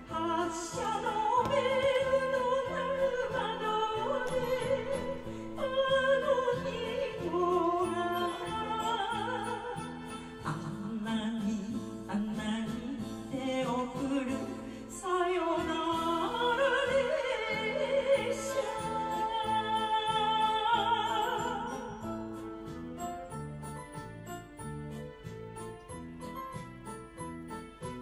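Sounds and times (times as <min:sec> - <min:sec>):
woman singing into microphone: 0:00.0 - 0:22.2
karaoke backing track: 0:00.0 - 0:28.0.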